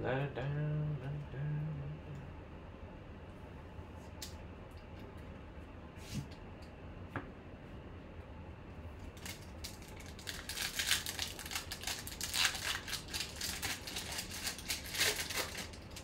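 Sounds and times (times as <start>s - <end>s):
foil wrapper tearing and crinkling: 9.2s - 16.0s.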